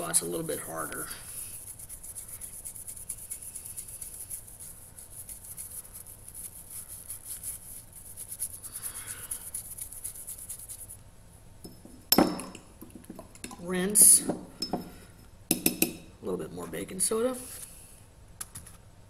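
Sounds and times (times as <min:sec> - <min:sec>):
toothbrush scrubbing knife blade: 0:00.0 - 0:10.9.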